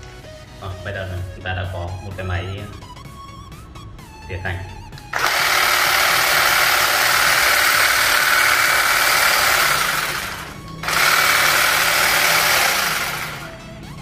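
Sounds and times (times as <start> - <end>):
cordless hedge trimmer buzzing: 5.1 - 13.7.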